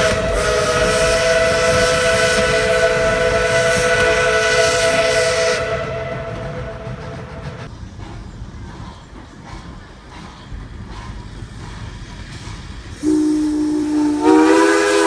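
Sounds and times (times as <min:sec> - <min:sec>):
steam locomotive whistle: 0:00.0 - 0:07.6, 0:13.0 - 0:15.0
steam hiss: 0:00.0 - 0:15.0.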